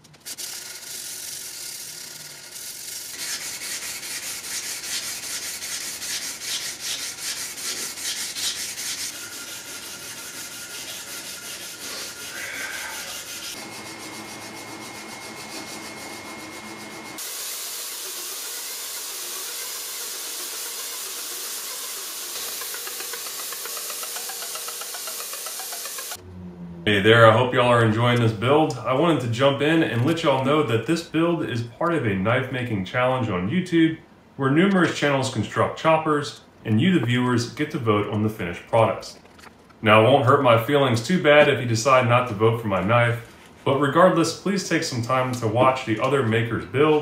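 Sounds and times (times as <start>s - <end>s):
abrasive stick sanding steel: 0.3s - 26.2s
belt grinder running: 0.3s - 26.2s.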